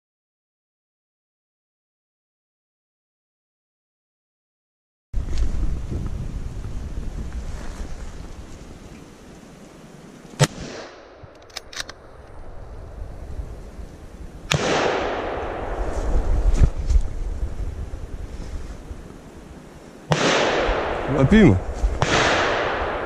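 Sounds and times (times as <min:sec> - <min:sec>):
wind rumble on microphone: 0:05.2 - 0:09.4, 0:12.0 - 0:19.7, 0:20.5 - 0:23.0
rifle shots echoing: 0:14.5 - 0:16.2, 0:20.1 - 0:23.0.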